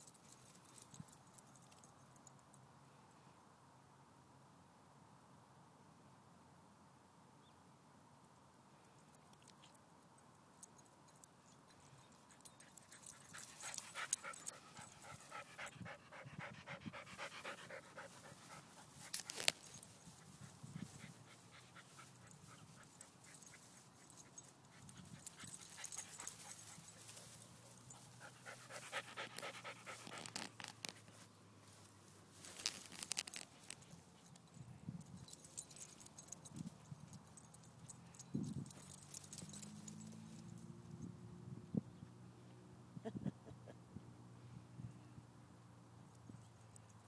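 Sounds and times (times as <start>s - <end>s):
dog panting: 13.0s - 27.2s, 27.9s - 30.4s.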